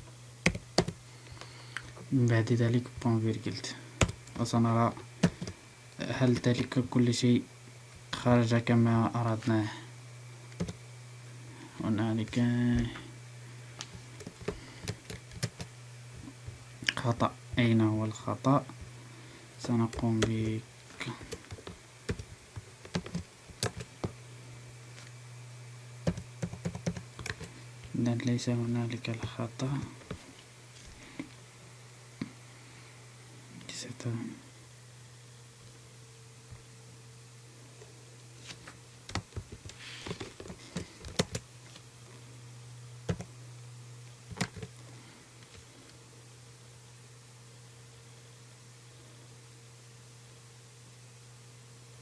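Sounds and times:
low steady hum: 0.0s - 52.0s
computer keyboard typing: 0.4s - 1.0s, 4.0s - 4.3s, 5.2s - 5.6s, 10.6s - 10.8s, 14.2s - 15.7s, 19.9s - 24.2s, 26.0s - 27.5s, 39.1s - 41.4s, 43.1s - 43.3s, 44.3s - 44.7s
keyboard key presses: 0.4s - 1.0s, 21.3s - 24.2s, 26.0s - 27.5s.

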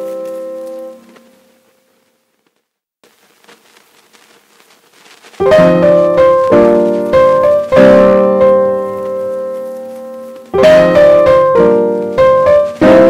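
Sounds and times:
piano chords: 0.0s - 1.7s, 5.4s - 13.0s.

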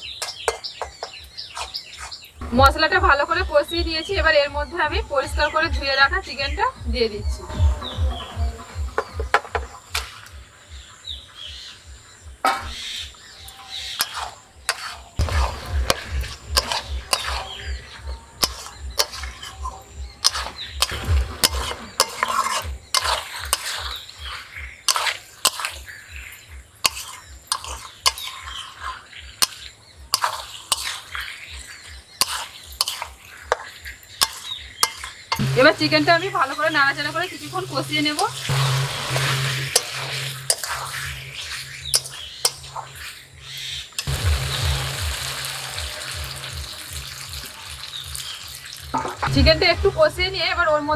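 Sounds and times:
wooden spatula scraping metal pan: 13.9s - 25.9s, 26.8s - 43.2s.

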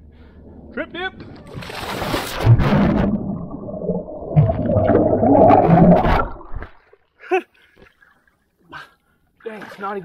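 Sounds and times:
muffled underwater churning water: 0.0s - 7.0s.

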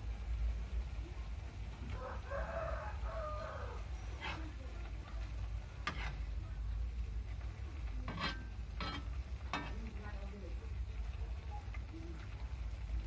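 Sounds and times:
metal spatula scraping a wok: 3.8s - 6.4s, 7.8s - 10.1s.

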